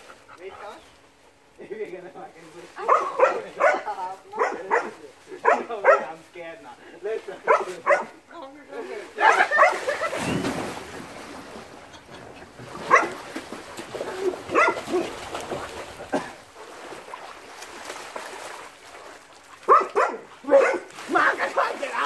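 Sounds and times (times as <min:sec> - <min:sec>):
faint water splashing: 0:00.0 - 0:22.0
dog barking: 0:02.8 - 0:06.2, 0:07.5 - 0:08.2, 0:09.2 - 0:09.8, 0:12.9 - 0:13.2, 0:14.5 - 0:15.1, 0:19.7 - 0:20.9.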